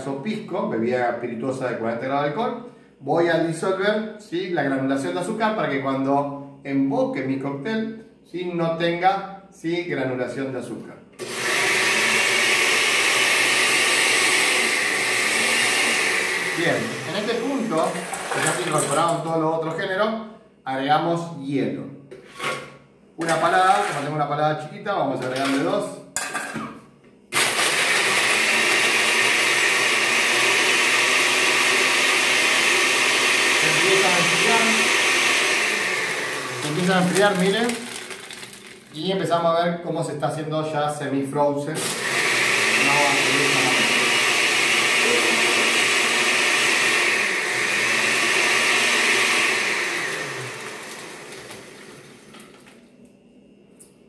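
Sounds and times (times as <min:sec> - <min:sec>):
blender motor winding down: 0:11.2 - 0:19.2, 0:27.3 - 0:38.9, 0:41.8 - 0:52.4
blender crushing ice: 0:11.2 - 0:19.3, 0:23.2 - 0:24.2, 0:25.2 - 0:25.7, 0:27.3 - 0:39.0, 0:41.8 - 0:52.8.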